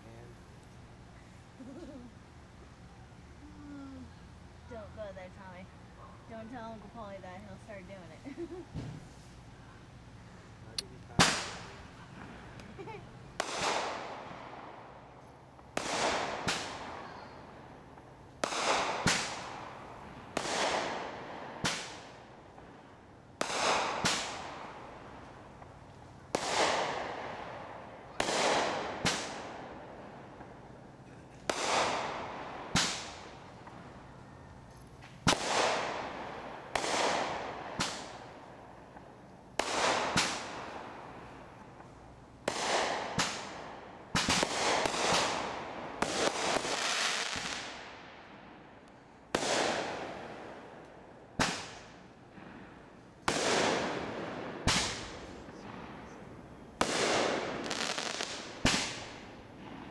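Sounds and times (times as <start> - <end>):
firework launch thumps: 8.7 - 9.2
firework bursts with echo: 10.7 - 59.9.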